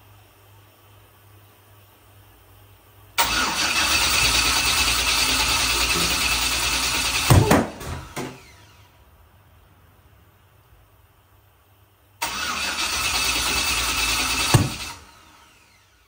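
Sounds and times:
engine backfire bursts: 3.2s - 8.9s, 12.2s - 15.8s
engine cranking on starter: 3.2s - 8.9s, 12.2s - 15.9s.

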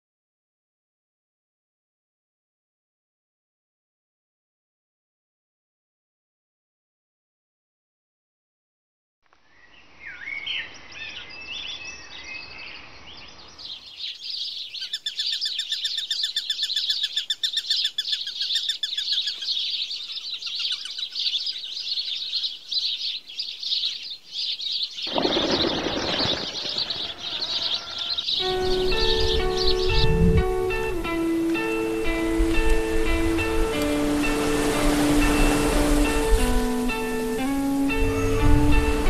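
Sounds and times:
birds chirping and tweeting: 9.4s - 39.0s.

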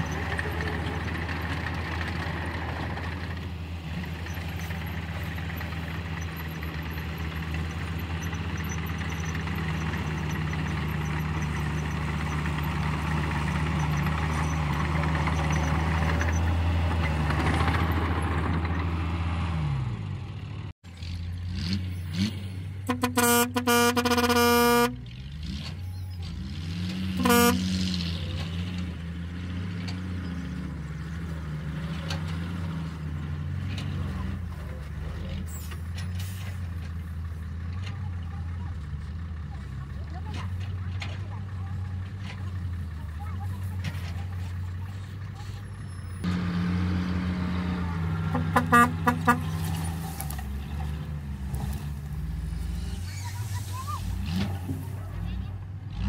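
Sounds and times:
bulldozer engine under load: 0.0s - 56.0s
dump truck engine: 0.0s - 56.0s
truck horn short toots: 22.8s - 25.0s, 27.1s - 27.9s, 48.2s - 50.0s.

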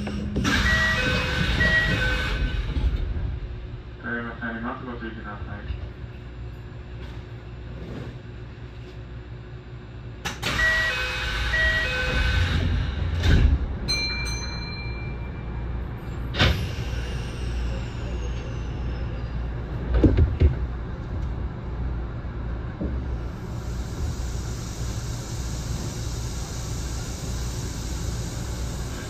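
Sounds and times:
train low rumble: 0.0s - 29.0s
two-tone door chime: 13.9s - 15.3s.

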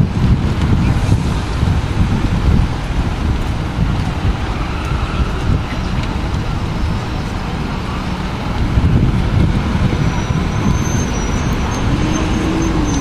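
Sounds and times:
city street traffic rumble: 0.0s - 13.0s.

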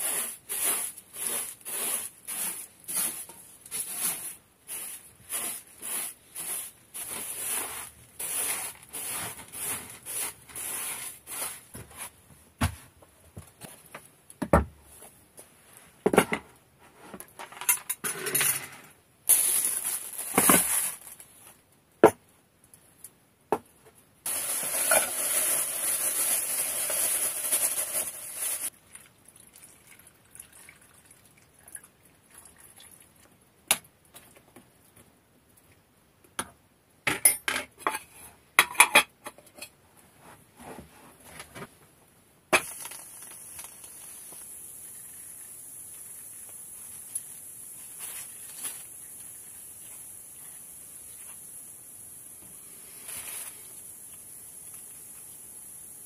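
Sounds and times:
broom sweeping wooden floor: 0.0s - 13.0s, 24.3s - 28.7s, 46.0s - 51.5s, 52.5s - 54.8s.

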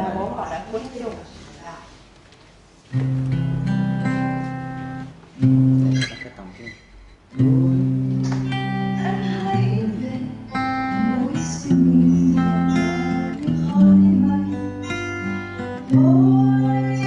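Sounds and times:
acoustic guitar strumming chords: 2.9s - 6.3s, 7.0s - 17.0s.

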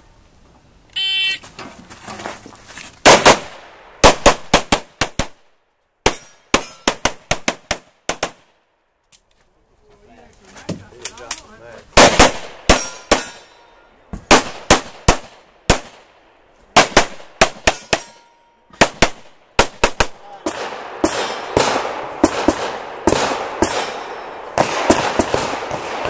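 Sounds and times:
pistol shots: 3.0s - 5.4s, 12.0s - 13.4s, 14.3s - 16.1s, 16.8s - 18.2s, 18.8s - 26.0s.

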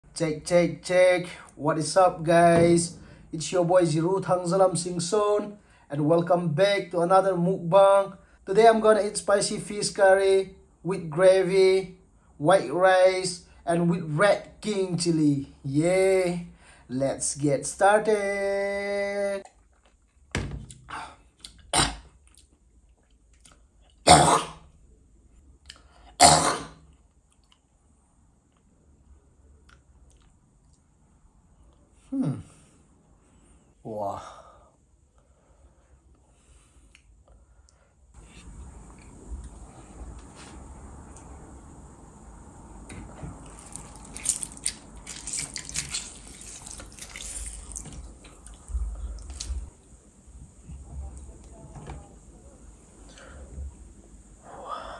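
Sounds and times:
lemon squishing and juice dripping: 43.4s - 49.7s.

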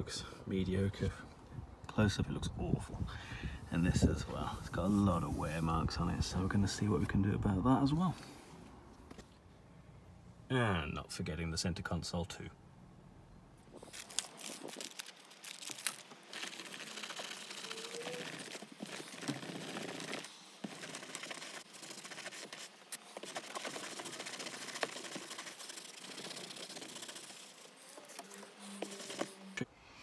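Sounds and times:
wipe scrubbing leather seat: 20.8s - 29.5s.

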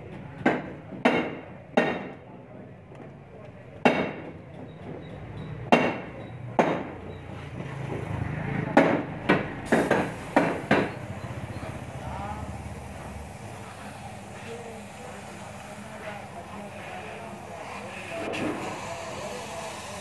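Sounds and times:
sharp knocks: 5.7s - 7.0s, 8.8s - 11.0s.

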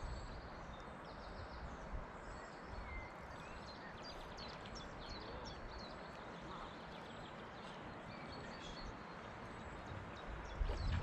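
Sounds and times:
wind on microphone: 0.0s - 0.5s, 9.9s - 11.0s
small birds chirping: 0.0s - 11.0s.

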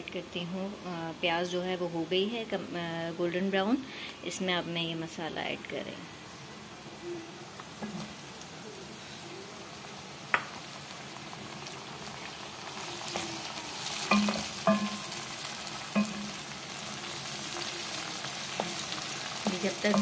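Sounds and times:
tomatoes sizzling in hot oil: 0.0s - 20.0s
wooden spatula knocking on pan: 14.1s - 15.1s, 16.0s - 16.4s.

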